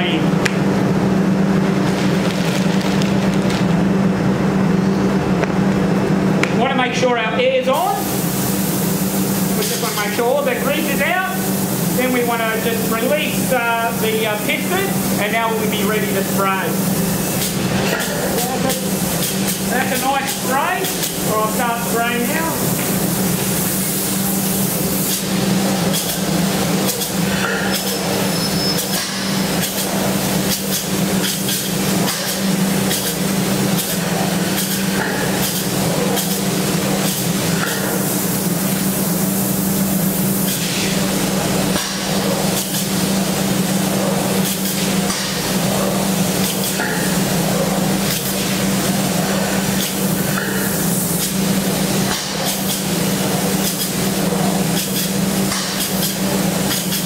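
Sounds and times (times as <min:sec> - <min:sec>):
spray gun hissing: 0:07.9 - 0:57.0.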